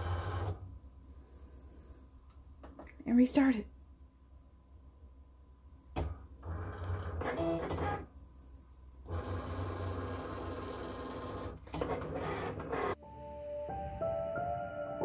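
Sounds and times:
cutting machine motors whirring: 9.1 - 13.0
soft music: 13.0 - 15.0.

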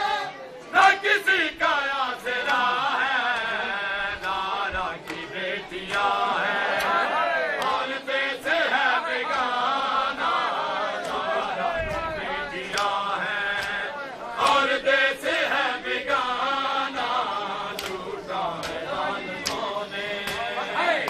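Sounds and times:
men chanting together: 0.0 - 21.0
sharp slaps: 5.0 - 5.3, 6.7 - 7.0, 7.6 - 7.9, 11.0 - 11.3, 12.7 - 13.8, 17.7 - 20.6.

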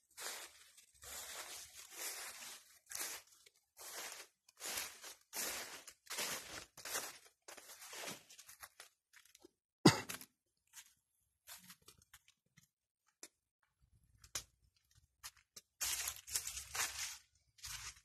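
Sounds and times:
rustling through dry leaves: 0.1 - 8.4, 15.8 - 18.0.

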